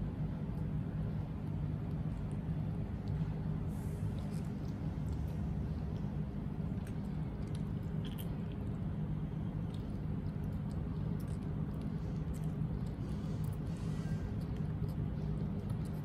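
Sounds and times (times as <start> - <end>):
steady low hum: 0.0 - 16.0
chewing clicks: 4.1 - 13.7, 14.3 - 16.0.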